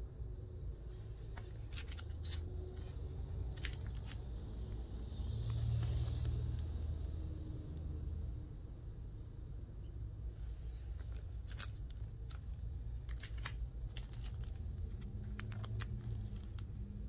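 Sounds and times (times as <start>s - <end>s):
low steady hum: 0.0s - 17.0s
plastic sleeves crinkling: 1.3s - 4.4s, 10.4s - 17.0s.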